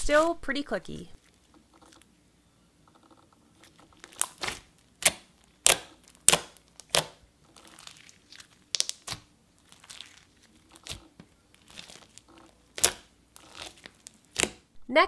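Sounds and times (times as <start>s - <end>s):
foam beads crackling: 3.5s - 14.5s
slime clicking and popping: 4.0s - 14.7s.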